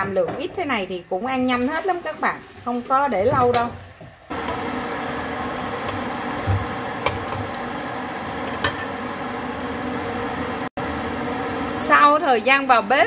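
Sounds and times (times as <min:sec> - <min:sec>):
appliance motor hum: 0:04.3 - 0:12.7.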